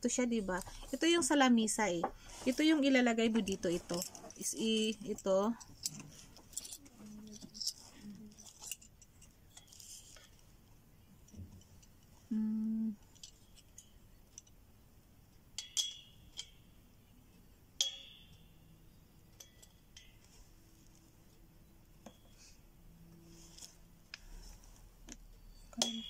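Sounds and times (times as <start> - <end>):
metal clicks and clinks: 3.9 - 10.3.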